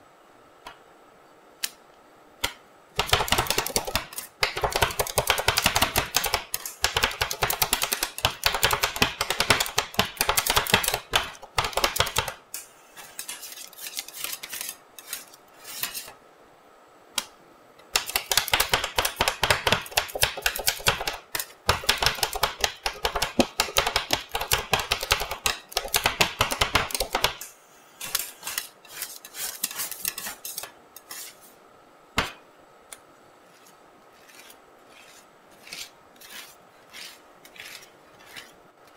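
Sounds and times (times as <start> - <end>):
spatula scraping metal plate: 12.6 - 16.2, 28.0 - 31.5, 33.5 - 38.9.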